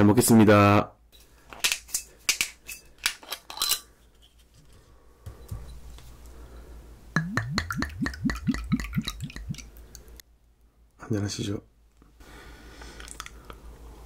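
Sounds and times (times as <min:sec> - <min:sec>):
liquid glugging into glass: 0:07.2 - 0:10.1.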